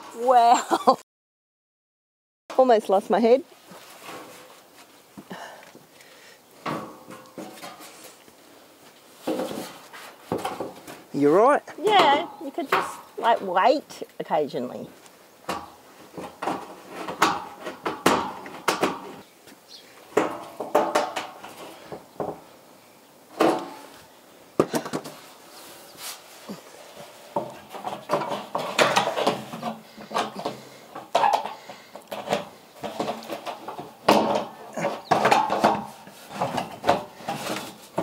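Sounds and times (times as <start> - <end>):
corrugated iron sheet clanking: 6.6 - 8.2, 9.2 - 14.0, 15.5 - 19.2, 20.1 - 22.4, 26.8 - 38.0.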